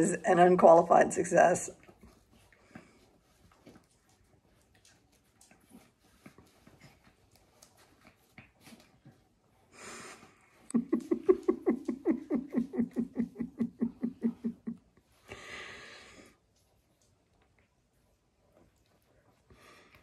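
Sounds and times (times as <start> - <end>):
dogs wrestling on a blanket: 1.8 - 11.4
woman laughing: 10.7 - 14.9.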